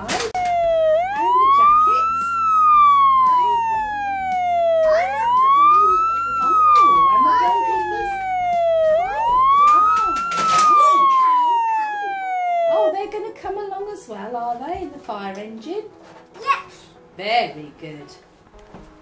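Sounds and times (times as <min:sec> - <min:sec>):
electronic siren wailing: 0:00.3 - 0:13.1.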